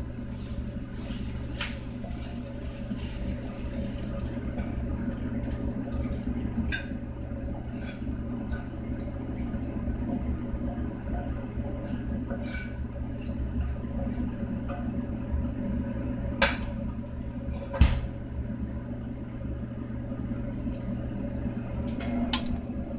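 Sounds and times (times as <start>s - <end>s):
wooden spatula scraping a pan: 0.2s - 14.9s.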